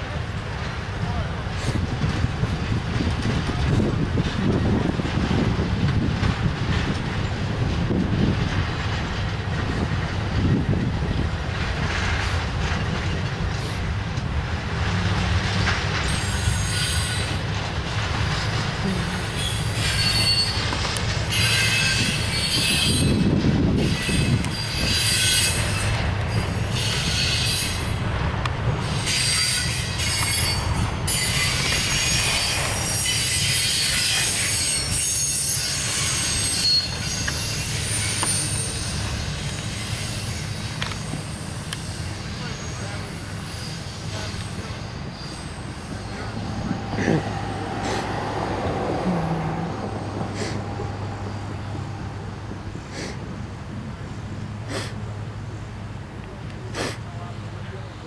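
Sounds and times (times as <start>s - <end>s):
freight train wheels rumbling: 0.0s - 58.0s
high-pitched wheel squeal: 16.1s - 17.4s, 19.2s - 28.0s, 28.9s - 52.2s.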